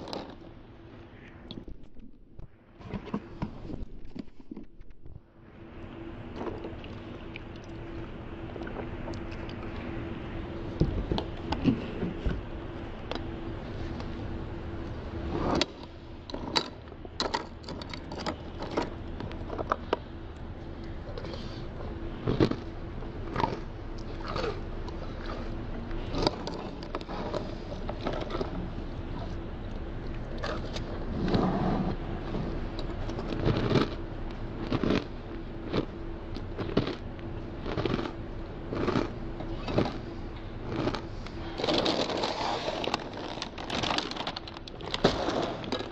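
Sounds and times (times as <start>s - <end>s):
steady low hum: 0.0s - 45.9s
person crunching cereal: 22.2s - 22.7s, 33.1s - 34.0s, 34.6s - 40.0s, 40.6s - 45.9s.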